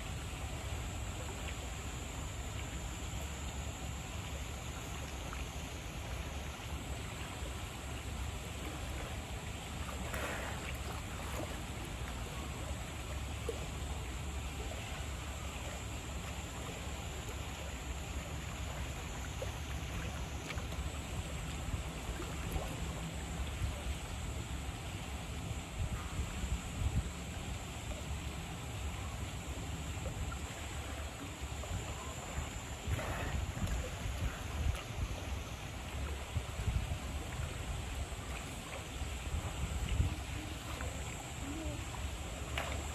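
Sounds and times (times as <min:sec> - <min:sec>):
water-like hiss: 0:32.8 - 0:35.0.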